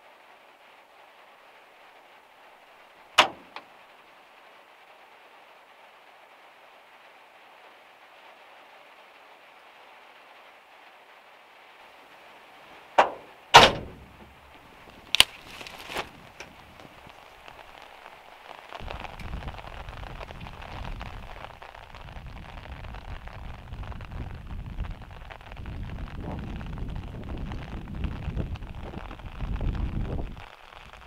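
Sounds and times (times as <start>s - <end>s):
rain hiss: 0.0s - 31.0s
van door clicking and knocking: 13.0s - 14.3s
wind rumbling on microphone: 13.0s - 31.0s.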